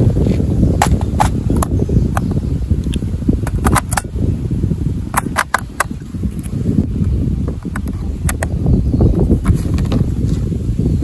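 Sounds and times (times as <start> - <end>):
wind buffeting microphone: 0.0 - 11.0
plastic clicks of batteries: 0.8 - 4.1, 5.1 - 6.6.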